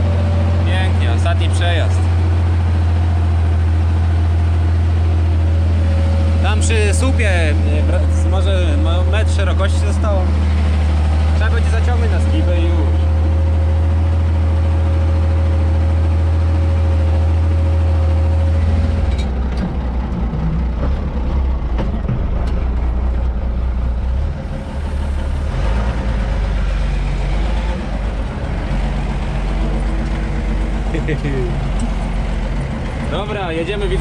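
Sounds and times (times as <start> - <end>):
tractor diesel engine running: 0.0 - 34.0.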